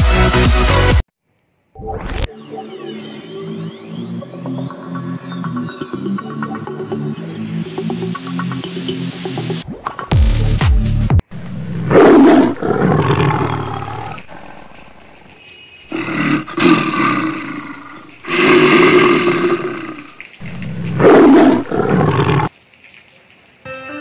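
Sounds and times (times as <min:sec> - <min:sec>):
big cat roaring: 0:11.8 - 0:15.0, 0:15.9 - 0:22.5.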